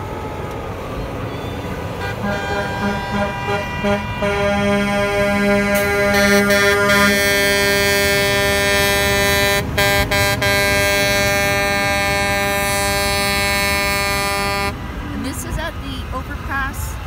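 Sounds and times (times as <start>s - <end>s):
truck air horn blast: 1.9s - 14.8s.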